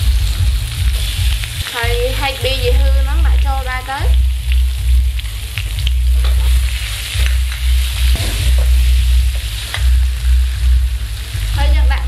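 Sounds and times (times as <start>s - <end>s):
low hum: 0.0s - 12.0s
vegetables sizzling in oil: 0.0s - 12.0s.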